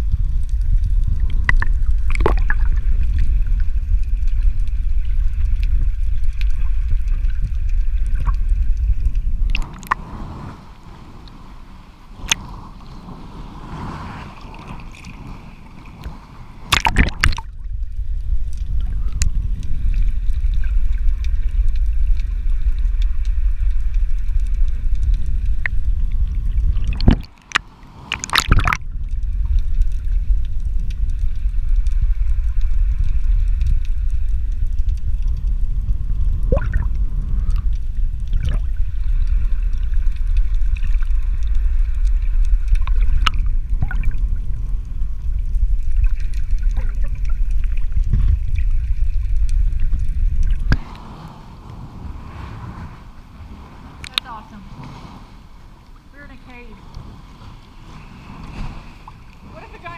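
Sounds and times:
muffled underwater rumble and sloshing: 0:00.0 - 0:59.9
water splash: 0:01.3 - 0:03.3, 0:09.4 - 0:10.4, 0:13.7 - 0:17.7, 0:26.4 - 0:29.1, 0:36.4 - 0:37.0, 0:38.2 - 0:38.9, 0:42.6 - 0:44.6, 0:45.8 - 0:59.9.

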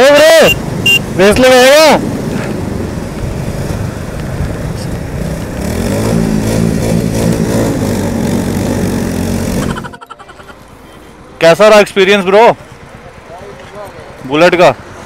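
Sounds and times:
motorcycle engines at speed: 0:00.4 - 0:10.0
wind rushing over microphone: 0:00.7 - 0:08.6.

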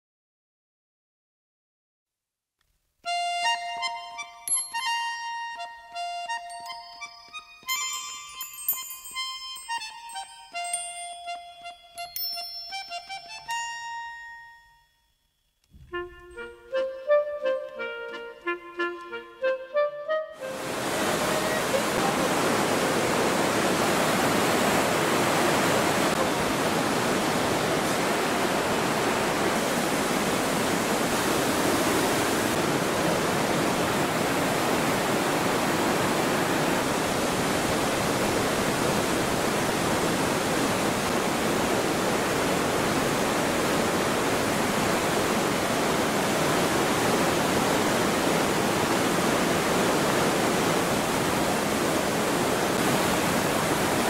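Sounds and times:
river rushing over boulders: 0:20.4 - 0:54.0.

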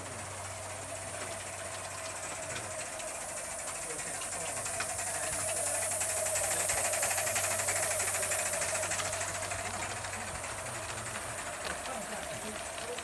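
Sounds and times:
model steam engine exhaust beats: 0:00.0 - 0:13.0
steam hiss: 0:00.0 - 0:13.0.

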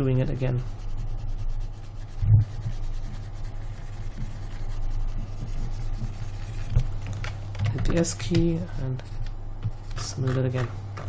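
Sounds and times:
faint rubbing of hand strokes: 0:00.0 - 0:06.8
low electrical hum: 0:00.0 - 0:11.0.

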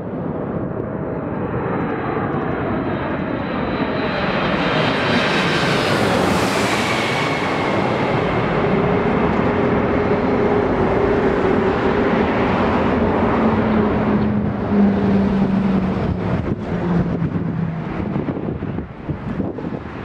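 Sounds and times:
jet airliner passing overhead: 0:00.0 - 0:20.0.

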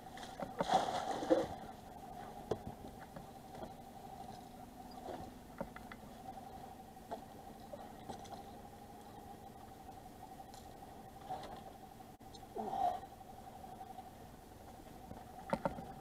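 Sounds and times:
boat engine humming: 0:00.0 - 0:16.0
light clicks and creaks: 0:01.3 - 0:11.8, 0:14.7 - 0:16.0.

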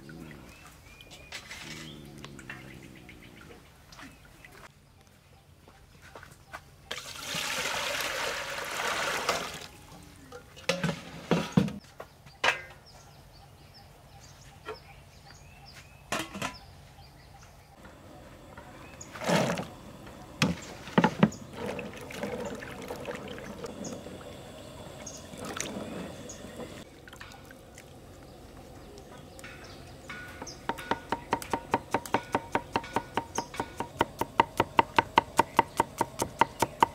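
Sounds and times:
metal pot clanks: 0:12.4 - 0:12.8, 0:16.1 - 0:16.6, 0:29.5 - 0:34.0
water pouring into metal pot: 0:21.4 - 0:28.6
soft splashing in bowl: 0:26.7 - 0:29.4.

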